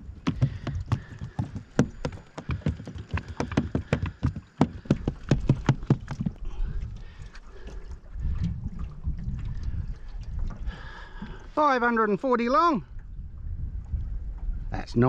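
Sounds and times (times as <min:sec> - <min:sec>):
fish flapping on deck: 0:00.1 - 0:06.5.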